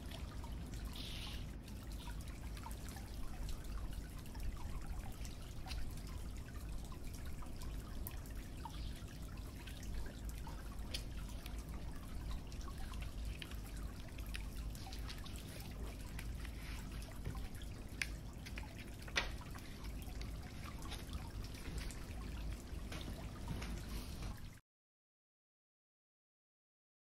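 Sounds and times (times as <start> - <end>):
steady low hum: 0.0 - 24.6
paper card ticks and taps: 18.0 - 19.4.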